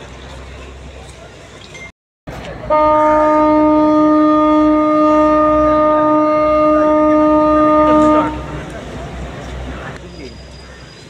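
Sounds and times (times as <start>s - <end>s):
ship horn long blast: 2.6s - 8.7s.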